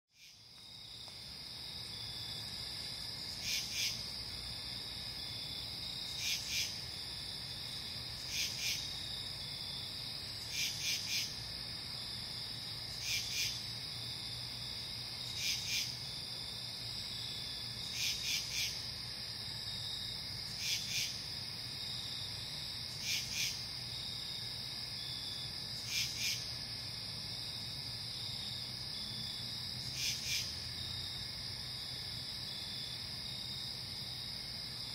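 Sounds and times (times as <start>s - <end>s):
crickets trilling: 0.2s - 34.9s
pulsed insect call: 1.7s - 6.8s, 12.9s - 13.7s, 22.9s - 26.6s, 27.4s - 34.2s.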